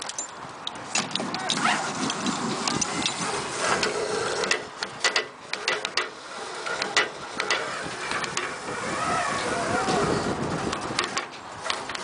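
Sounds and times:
metal gear clicks and knocks: 0.0s - 3.2s.

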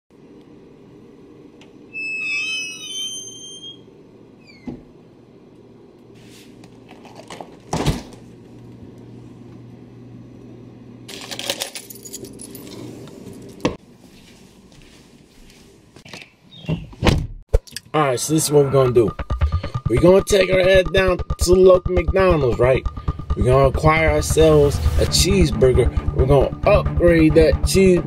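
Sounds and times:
door hinge creaking: 1.9s - 4.8s
steady low hum: 17.8s - 28.0s.

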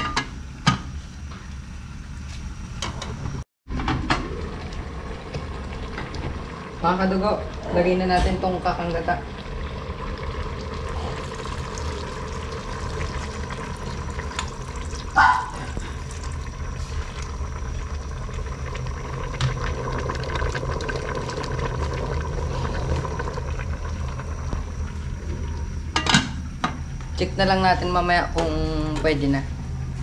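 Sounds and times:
thick liquid pouring into pot: 9.2s - 24.4s.

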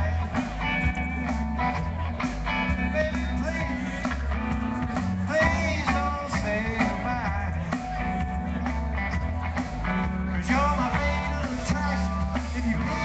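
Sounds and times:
bass line: 0.0s - 13.0s
electric guitar: 0.0s - 13.0s
live rock band: 0.0s - 13.0s
person singing: 2.6s - 8.6s, 10.3s - 13.0s.

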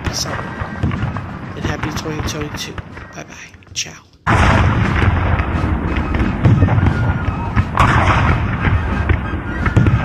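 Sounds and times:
heavy booms: 0.0s - 3.1s, 4.3s - 10.0s
crackle of sharp bangs: 0.0s - 3.2s, 4.2s - 10.0s.

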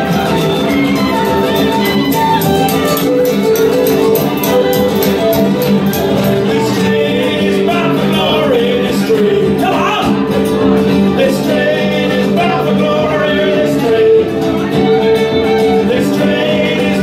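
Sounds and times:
person singing: 0.0s - 3.2s, 6.1s - 10.4s, 11.1s - 17.0s
fiddle holding notes: 0.0s - 7.3s, 14.0s - 17.0s
strummed acoustic guitar: 0.0s - 17.0s.

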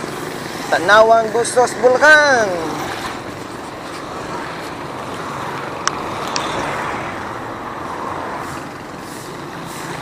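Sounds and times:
wind and road noise: 0.0s - 10.0s.

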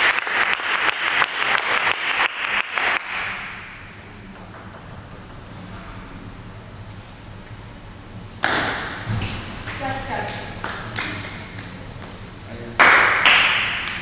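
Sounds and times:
small crowd applauding: 0.0s - 3.2s, 12.8s - 14.0s.

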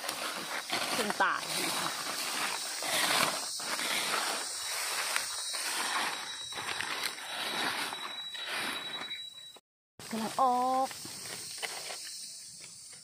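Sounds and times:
dry leaves rustling and crunching: 0.0s - 8.1s.

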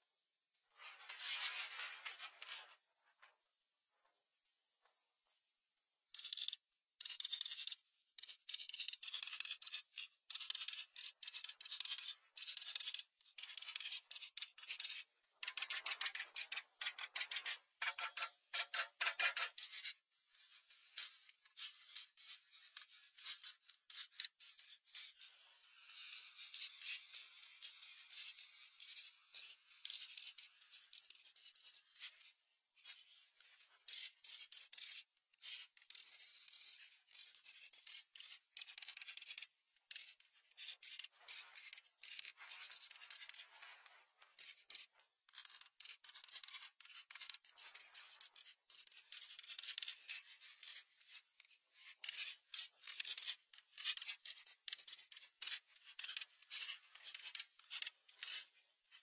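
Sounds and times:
crayon scratching on paper: 51.8s - 58.5s.

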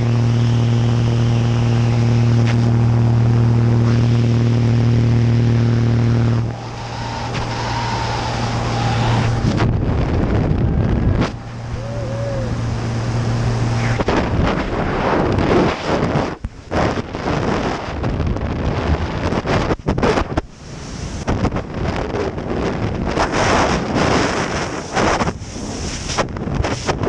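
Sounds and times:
plane propeller engine drone: 0.0s - 27.0s
wind rushing on microphone: 6.2s - 27.0s.

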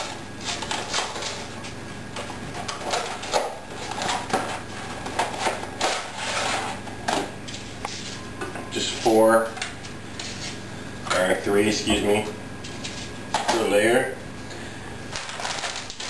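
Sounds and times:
packaging crackling and rustling: 15.1s - 16.0s.

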